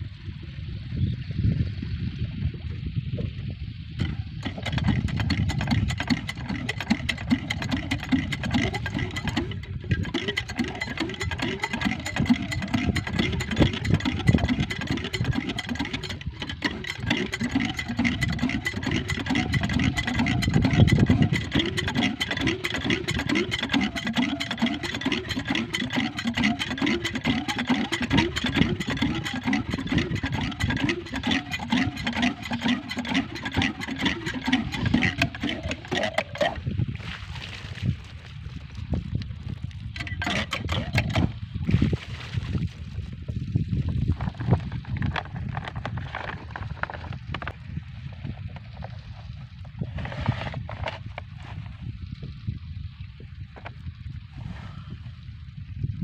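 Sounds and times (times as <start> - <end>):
diesel engine chugging: 4.0 - 36.6, 40.0 - 41.4.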